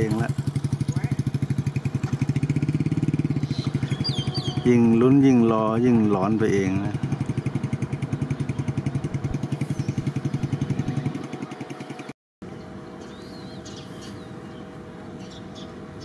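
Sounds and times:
engine idling: 0.0 - 12.1
birds chirping: 0.0 - 16.0.

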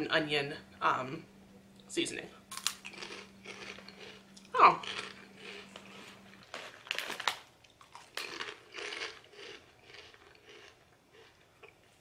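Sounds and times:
crunching and chewing snacks: 2.5 - 12.0.

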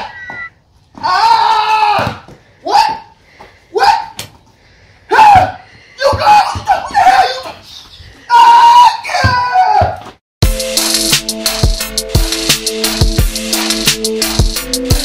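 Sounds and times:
people shouting: 1.0 - 3.1, 5.1 - 7.6, 8.3 - 10.0.

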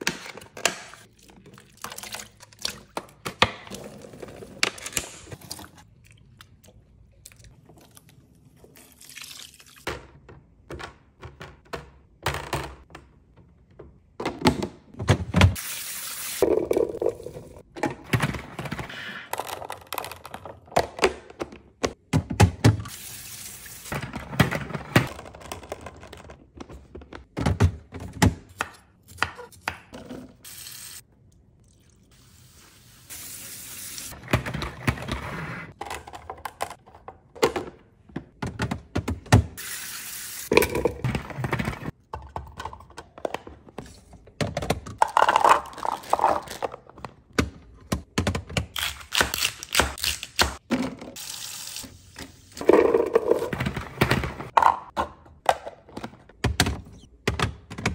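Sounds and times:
running tap water: 32.1 - 34.2, 39.6 - 40.5.

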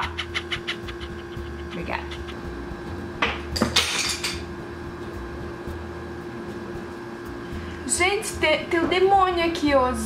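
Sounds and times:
faint hum: 4.4 - 10.0.

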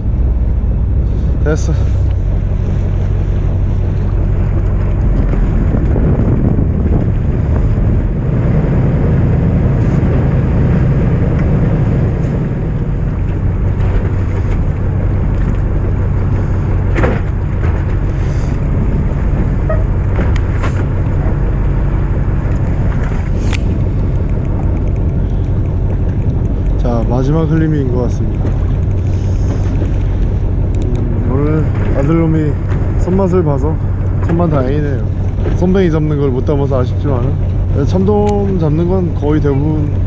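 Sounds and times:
boat engine humming: 0.0 - 40.0
sea: 0.0 - 40.0
wind on microphone: 2.0 - 36.4.

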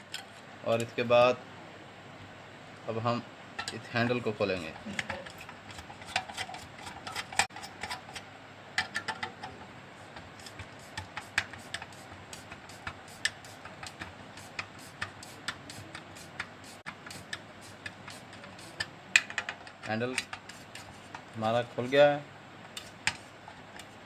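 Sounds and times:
screwdriver clicking and scraping: 5.0 - 8.2, 10.4 - 21.3, 22.7 - 24.0.

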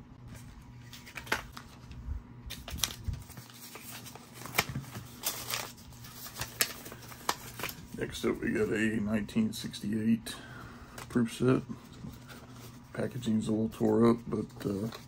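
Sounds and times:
plastic crinkling: 0.8 - 8.0.

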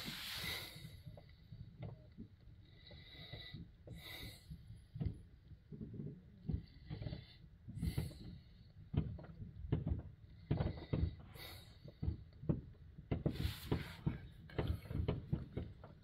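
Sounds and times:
fireworks popping: 0.0 - 0.9
fireworks hissing: 0.0 - 1.1, 13.2 - 15.1.

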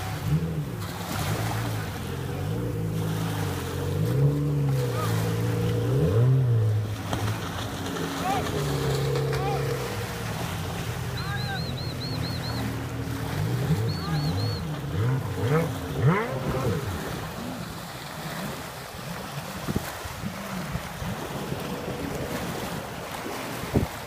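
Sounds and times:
jet ski engine revving: 0.0 - 24.0
small waves lapping: 0.0 - 24.0
wind on microphone: 16.3 - 24.0.

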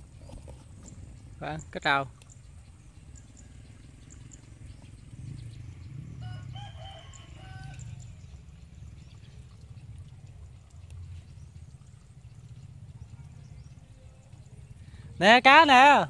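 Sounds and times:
low rumble: 2.4 - 6.8
rooster crowing: 6.2 - 8.0.

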